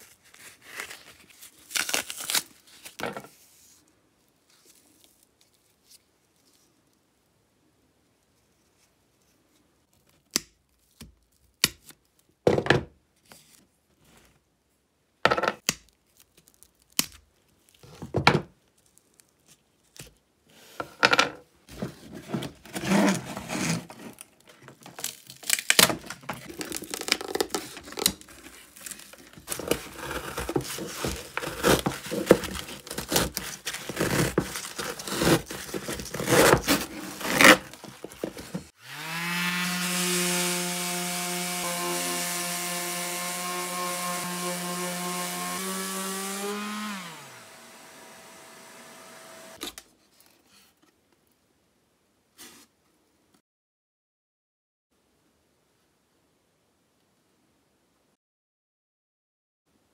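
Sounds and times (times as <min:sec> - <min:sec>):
material ripping off suitcase: 0:22.4 - 0:38.7.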